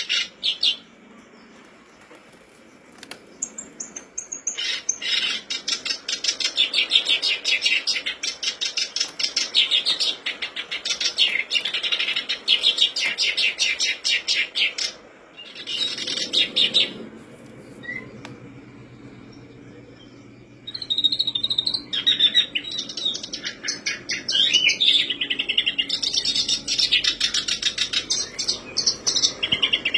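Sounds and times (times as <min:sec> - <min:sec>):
warbler chattering song: 0:00.0 - 0:02.1, 0:02.7 - 0:29.9.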